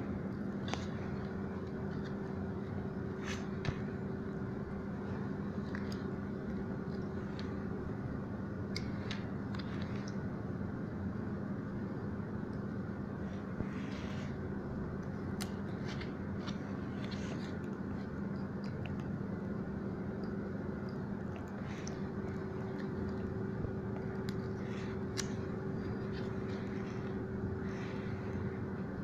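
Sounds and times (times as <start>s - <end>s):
background hum: 0.0s - 29.0s
light clicks and crackles: 0.2s - 4.1s, 5.0s - 8.0s, 8.6s - 10.4s, 14.9s - 29.0s.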